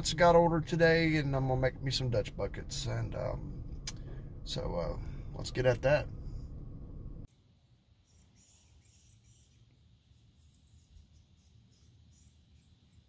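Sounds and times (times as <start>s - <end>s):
high-pitched wildlife chirping: 8.0s - 9.7s.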